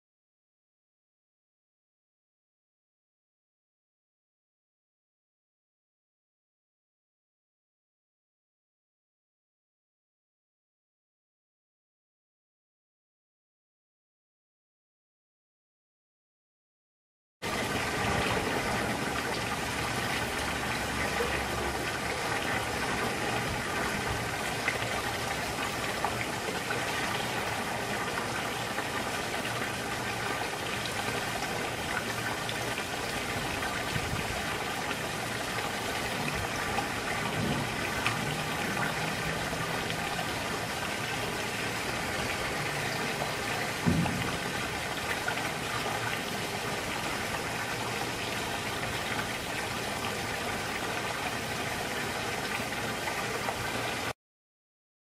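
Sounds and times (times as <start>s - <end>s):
water splashing into pool: 17.4s - 54.1s
low thump: 43.8s - 44.7s.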